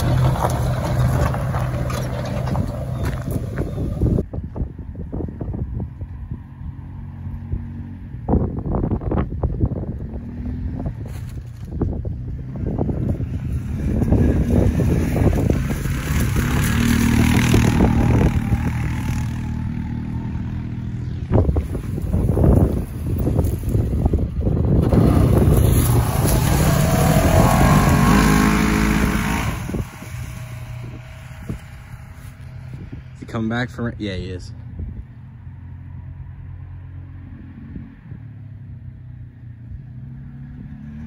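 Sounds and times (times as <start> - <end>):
wind buffeting microphone: 0.0 - 33.4
distant quad engine running: 12.5 - 33.3.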